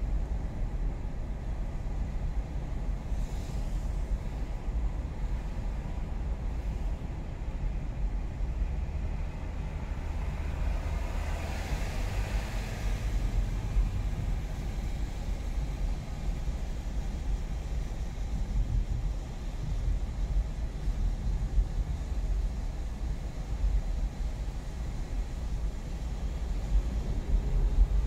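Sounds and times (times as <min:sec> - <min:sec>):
car road noise rumble: 0:00.0 - 0:28.0
hiss: 0:03.0 - 0:07.1.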